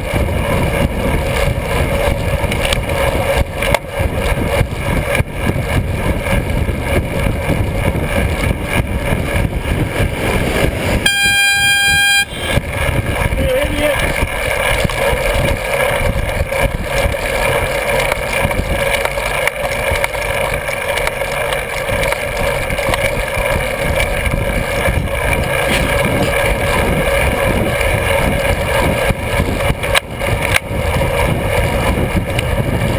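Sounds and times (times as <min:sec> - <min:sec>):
road noise: 0:00.0 - 0:32.9
wind rumble on microphone: 0:00.0 - 0:32.9
droning tone: 0:05.4 - 0:13.3.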